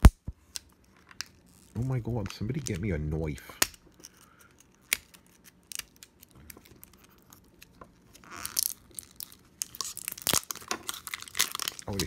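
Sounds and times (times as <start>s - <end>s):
plastic packaging crinkling: 0.7s - 12.0s
plastic tearing rustle: 3.9s - 12.0s.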